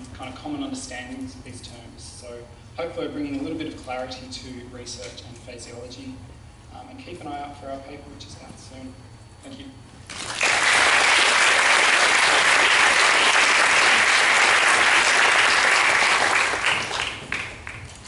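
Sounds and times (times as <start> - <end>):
audience applauding: 10.1 - 18.0.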